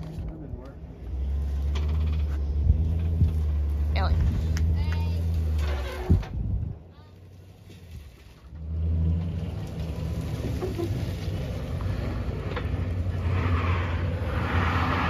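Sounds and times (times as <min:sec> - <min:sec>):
vehicle engine idling: 0:00.0 - 0:13.2
rustling scrape: 0:07.2 - 0:08.6.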